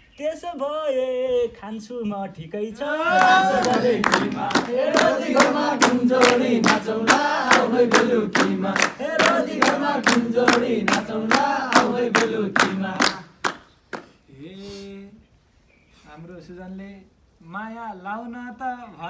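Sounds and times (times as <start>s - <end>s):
group of men singing: 2.6s - 13.4s
hand claps: 3.1s - 14.2s.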